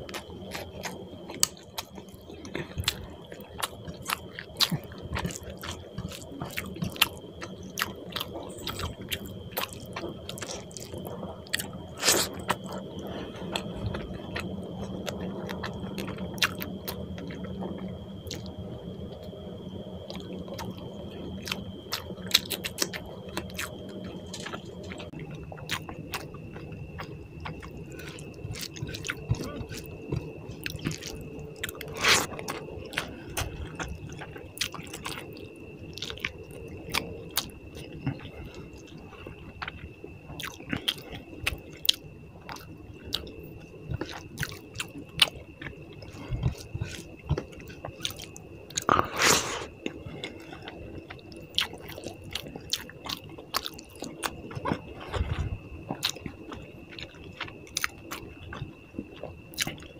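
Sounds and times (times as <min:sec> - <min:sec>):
person chewing: 0:00.1 - 0:12.8, 0:13.5 - 0:17.4, 0:21.4 - 0:36.3, 0:36.9 - 0:39.8, 0:40.4 - 0:43.3, 0:43.9 - 0:59.9.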